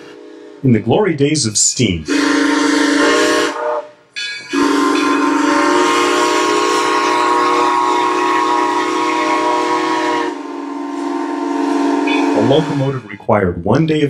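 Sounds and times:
steam whistle blast: 0:02.1 - 0:13.1.

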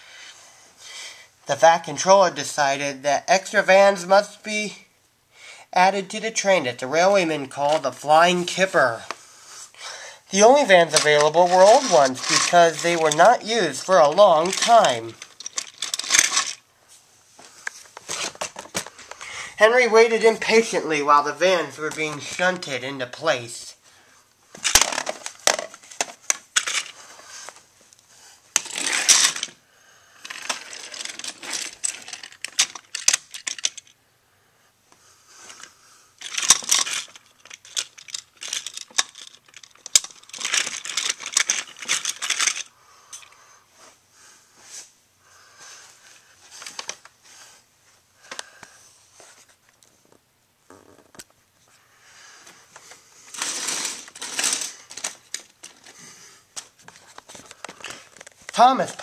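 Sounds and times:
plastic toy train wagons rattling: 0:10.3 - 0:16.6, 0:24.6 - 0:27.0, 0:28.6 - 0:29.6, 0:30.2 - 0:34.0, 0:36.2 - 0:43.3, 0:53.3 - 0:56.0, 0:57.2 - 0:59.0.

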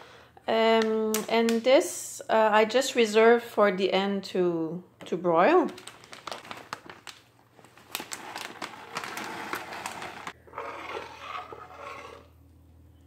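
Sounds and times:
plastic bag crinkling: 0:05.5 - 0:10.4.

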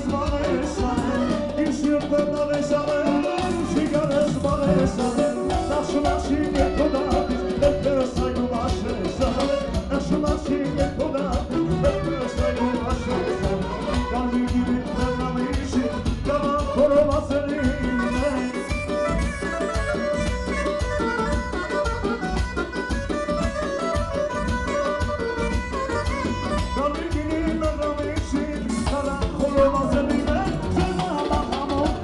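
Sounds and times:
electronic keyboard: 0:00.0 - 0:13.2
drum beat: 0:00.0 - 0:32.0
man singing into a microphone: 0:00.0 - 0:32.0
clarinet: 0:03.0 - 0:27.5.

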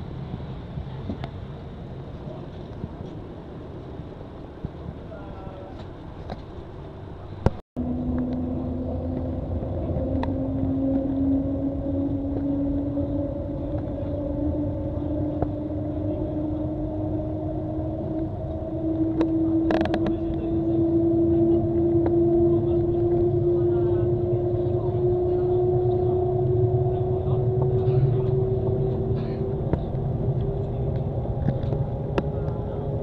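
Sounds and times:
train cabin rumble and hum: 0:00.0 - 0:33.0.

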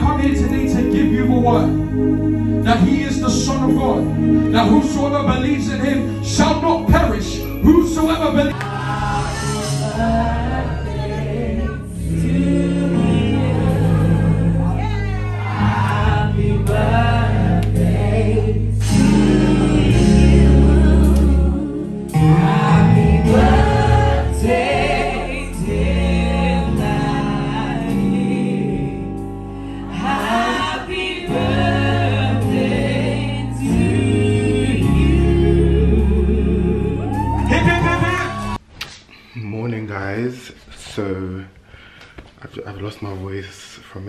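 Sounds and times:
band with held bass notes: 0:00.0 - 0:38.6
voices singing: 0:08.3 - 0:29.2, 0:29.8 - 0:38.6.

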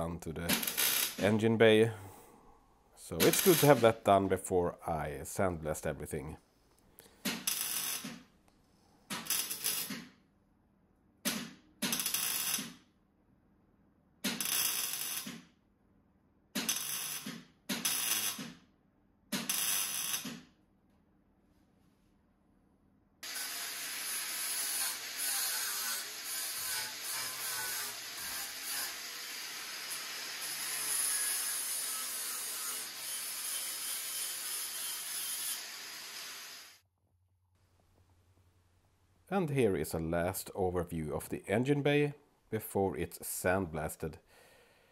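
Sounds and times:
arc welding crackle: 0:00.6 - 0:01.2, 0:03.3 - 0:03.8, 0:07.4 - 0:08.2, 0:09.2 - 0:10.0, 0:11.9 - 0:12.7, 0:14.3 - 0:15.4, 0:16.7 - 0:18.4, 0:19.5 - 0:20.3
angle grinder grinding steel: 0:23.2 - 0:36.8.

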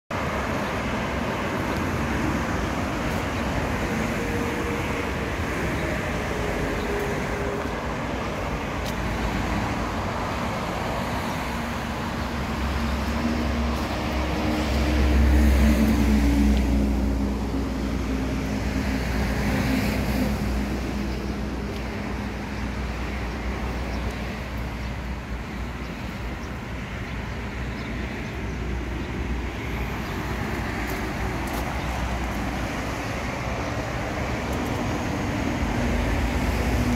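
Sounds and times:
road traffic noise: 0:00.1 - 0:36.9
vehicle passing: 0:01.9 - 0:22.4.

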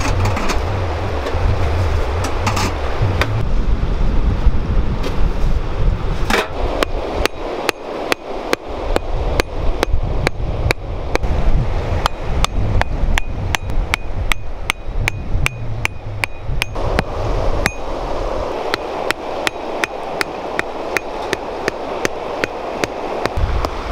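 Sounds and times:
hatchet hammering wooden stakes: 0:12.0 - 0:16.8.

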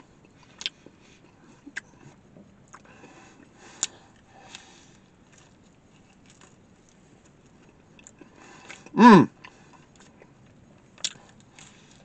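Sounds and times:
man chewing food: 0:00.0 - 0:12.0
man humming hmm: 0:09.0 - 0:09.3.

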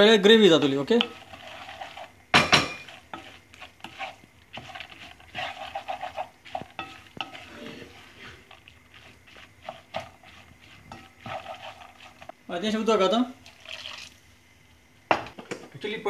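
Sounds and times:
spatula scraping metal pot: 0:00.6 - 0:12.4.

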